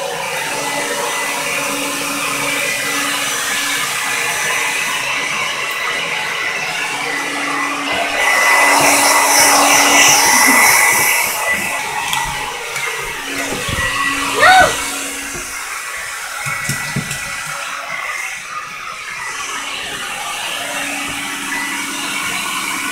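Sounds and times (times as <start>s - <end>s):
hair dryer running: 0.0s - 22.9s
short high-pitched cry: 14.3s - 15.0s.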